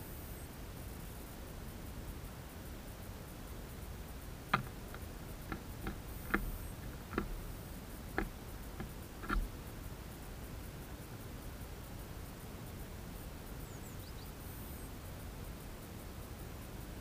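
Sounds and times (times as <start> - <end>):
bird claws tapping on wood: 4.5 - 9.5.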